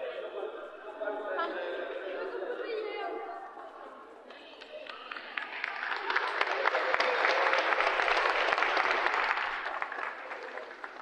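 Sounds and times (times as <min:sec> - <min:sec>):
spectators clapping in hall: 0:04.2 - 0:11.0.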